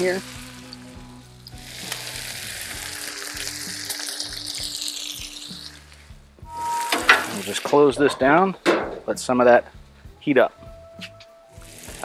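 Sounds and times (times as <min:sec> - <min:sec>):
burgers sizzling on griddle: 0:00.0 - 0:08.4, 0:11.5 - 0:12.0.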